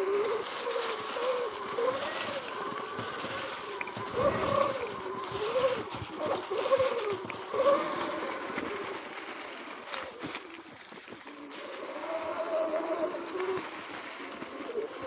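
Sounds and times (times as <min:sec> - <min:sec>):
electric motor whining: 0:00.0 - 0:10.2
tyres rustling on leaves: 0:00.0 - 0:15.0.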